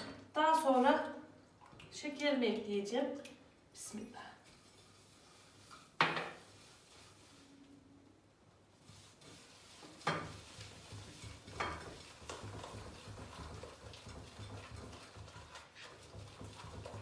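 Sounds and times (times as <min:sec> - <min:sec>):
soft mixing and rubbing: 0:03.9 - 0:17.0.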